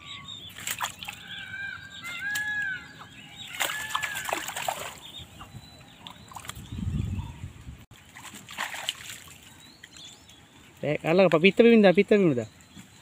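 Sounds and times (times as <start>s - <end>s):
birds calling: 0.0s - 13.0s
water sloshing and splashing: 0.4s - 1.5s, 3.4s - 6.8s, 7.9s - 10.4s.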